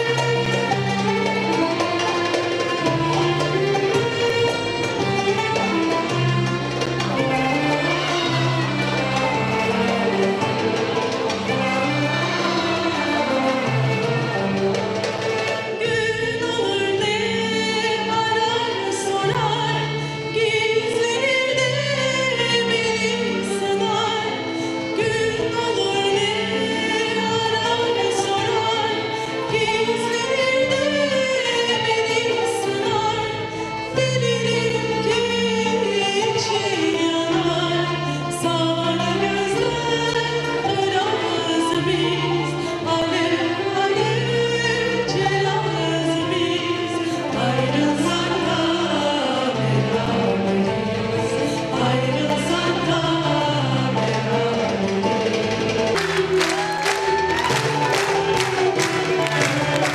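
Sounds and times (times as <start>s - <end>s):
orchestra with violins: 0.0s - 59.9s
woman singing into a microphone: 15.8s - 54.6s.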